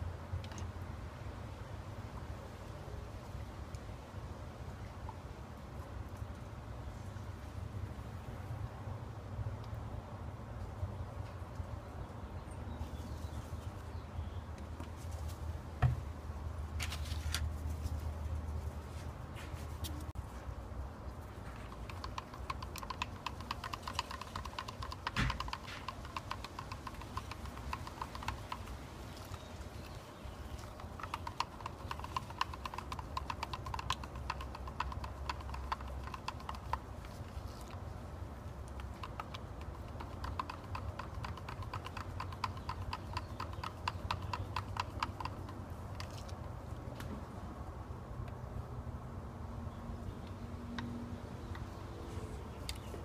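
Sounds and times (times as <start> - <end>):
stick stirring resin in plastic cup: 21.5 - 37.8.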